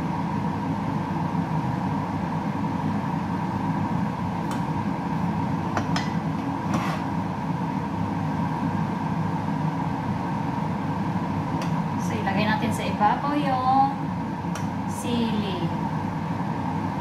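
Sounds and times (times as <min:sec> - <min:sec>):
range hood exhaust fan running: 0:00.0 - 0:17.0.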